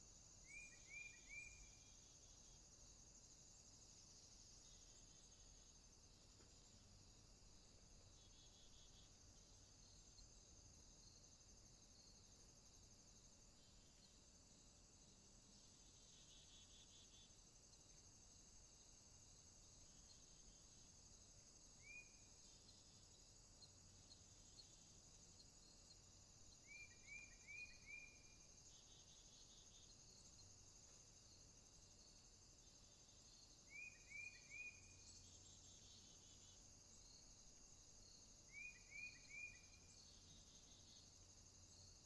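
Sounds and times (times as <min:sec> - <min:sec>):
insect chorus: 0:00.0 - 0:42.0
bird chirping: 0:00.4 - 0:02.2, 0:26.6 - 0:30.0, 0:33.2 - 0:37.1, 0:38.5 - 0:41.1.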